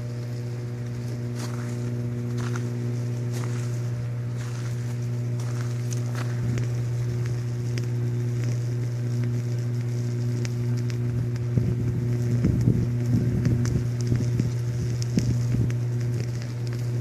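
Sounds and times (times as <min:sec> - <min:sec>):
electrical buzz: 0:00.0 - 0:17.0
electrical crackles and snaps: 0:00.0 - 0:17.0.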